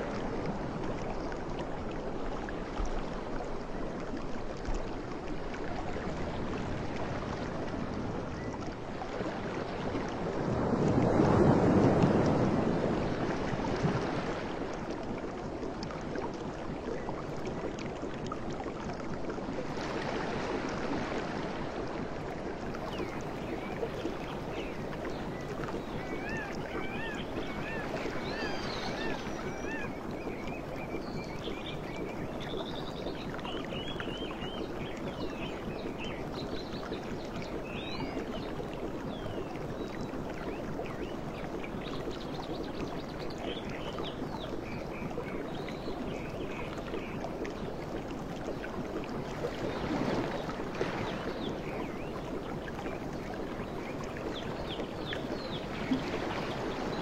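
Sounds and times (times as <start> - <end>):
birds chirping and warbling: 26.1 - 30.0.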